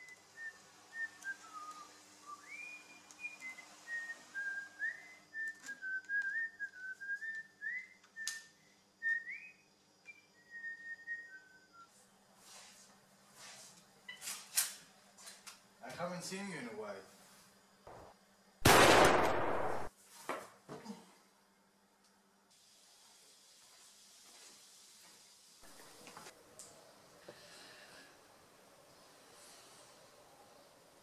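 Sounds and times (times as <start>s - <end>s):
person whistling a slow tune: 0.0s - 12.0s.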